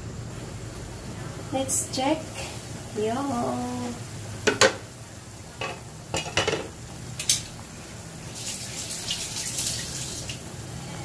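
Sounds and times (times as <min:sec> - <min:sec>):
kitchenware clinking against a pan: 0:05.6 - 0:07.5.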